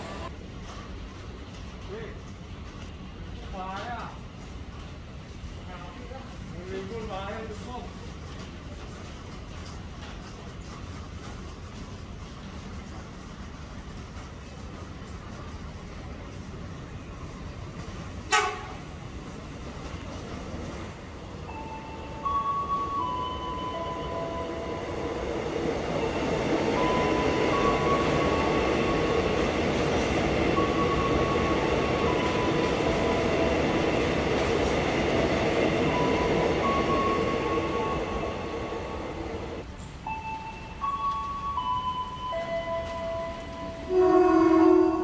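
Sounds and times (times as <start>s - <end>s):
passenger train passing: 0.0s - 1.8s, 2.4s - 45.0s
slow chime melody: 21.5s - 25.1s, 25.9s - 29.2s, 30.5s - 33.4s, 35.9s - 38.9s, 40.1s - 43.8s.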